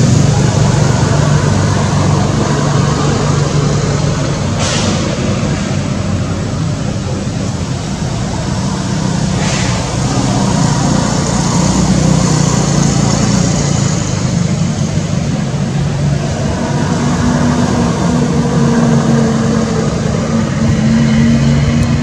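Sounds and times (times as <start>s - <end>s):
loud dense noise: 0.0s - 22.0s.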